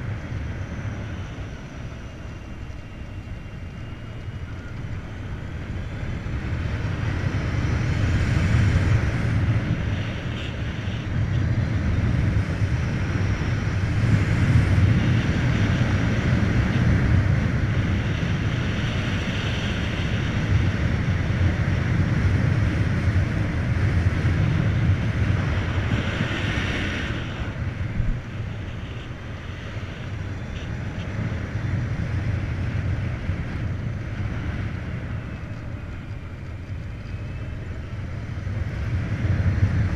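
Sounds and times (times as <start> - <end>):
road and tyre noise: 0.0 - 39.9
wind rushing over microphone: 0.0 - 39.9.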